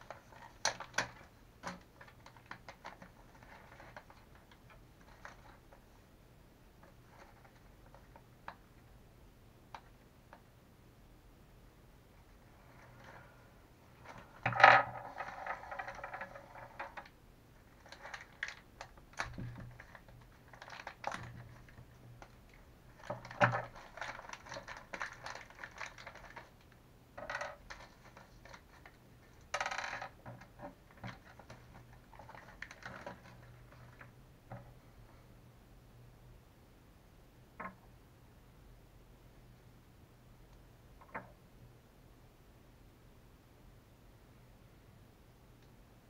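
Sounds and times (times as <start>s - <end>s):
shock absorber parts clicking and rattling: 0.0s - 5.8s, 14.0s - 17.1s, 17.7s - 34.8s.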